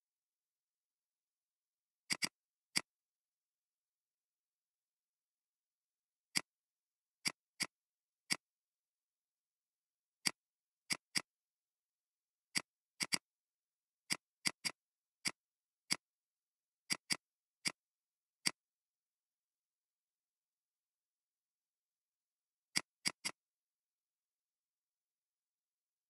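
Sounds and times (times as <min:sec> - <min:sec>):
mouse and keyboard clicks: 0:02.0 - 0:03.0, 0:06.3 - 0:06.6, 0:07.2 - 0:08.5, 0:10.2 - 0:11.4, 0:12.5 - 0:13.4, 0:14.0 - 0:16.2, 0:16.8 - 0:18.7, 0:22.7 - 0:23.5.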